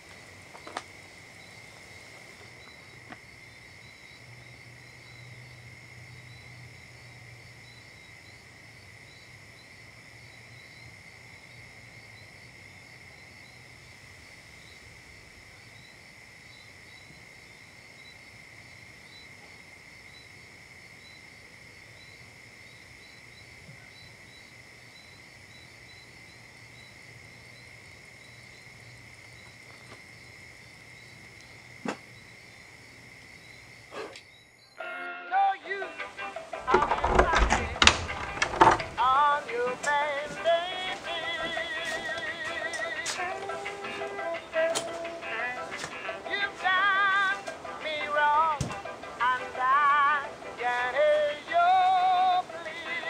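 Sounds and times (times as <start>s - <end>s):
insect chirps: 0.0s - 53.0s
insects droning: 0.0s - 53.0s.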